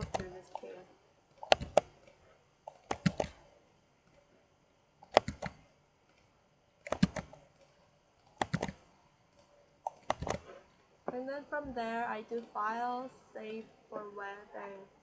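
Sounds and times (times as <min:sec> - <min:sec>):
mouse and keyboard clicks: 0:00.0 - 0:00.6, 0:01.4 - 0:03.4, 0:05.0 - 0:06.2, 0:06.9 - 0:07.4, 0:08.2 - 0:08.8, 0:09.4 - 0:10.5.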